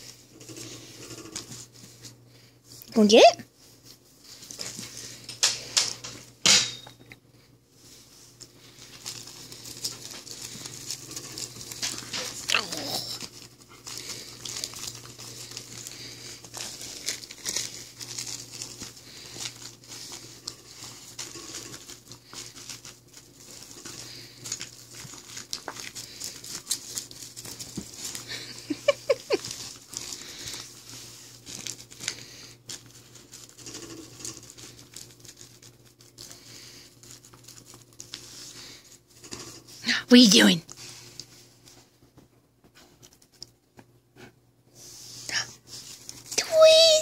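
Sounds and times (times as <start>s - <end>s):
fabric rustling and crinkling: 7.7s - 39.8s.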